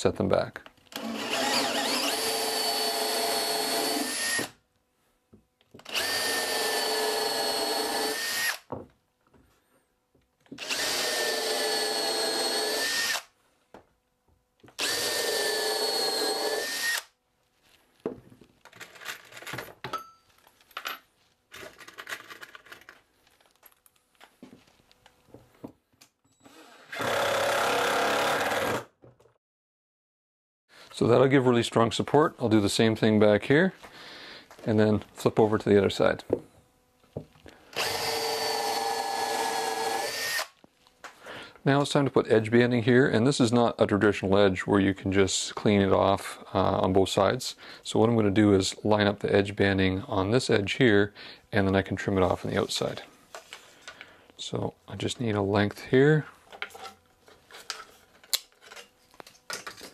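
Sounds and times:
cordless drill whining: 0:00.9 - 0:04.5, 0:05.8 - 0:08.7, 0:10.6 - 0:13.3, 0:14.8 - 0:17.1, 0:26.4 - 0:28.9, 0:37.7 - 0:40.6.

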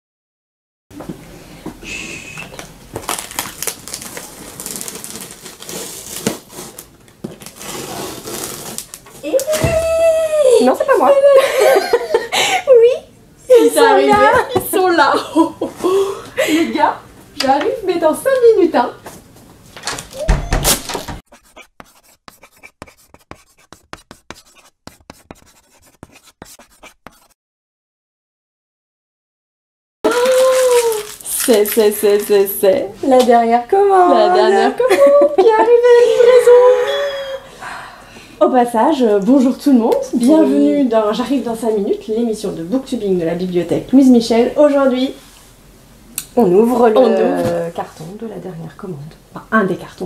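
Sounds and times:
cardboard crinkling: 0:03.0 - 0:09.5, 0:30.1 - 0:32.5
chalk scratching on pavement: 0:21.3 - 0:27.4.

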